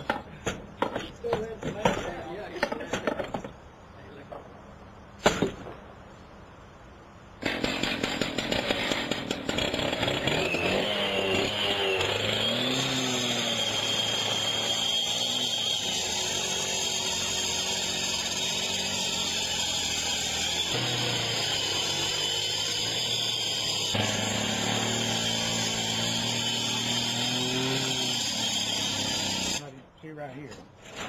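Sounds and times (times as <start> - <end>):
saw disc cutting metal mesh: 7.4 - 29.6
cut-off saw engine revving: 7.5 - 29.6.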